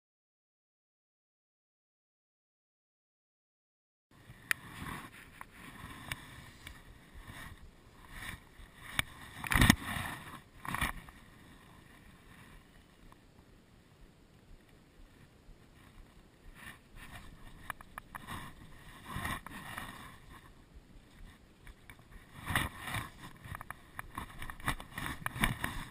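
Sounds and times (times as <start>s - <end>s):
fishing rod handling scrapes: 4.4s - 11.3s, 15.8s - 20.6s, 21.2s - 25.9s.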